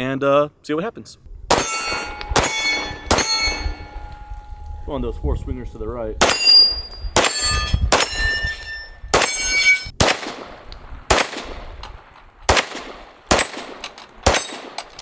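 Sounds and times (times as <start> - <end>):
pistol shots: 1.5 - 4.1, 6.2 - 8.3, 9.1 - 15.0
steel targets ringing: 1.5 - 9.9.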